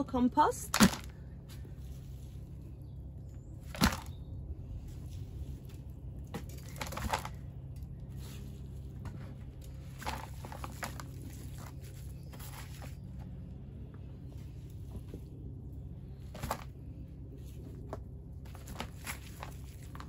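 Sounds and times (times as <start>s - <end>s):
crunching and rustling: 0.7s - 20.0s.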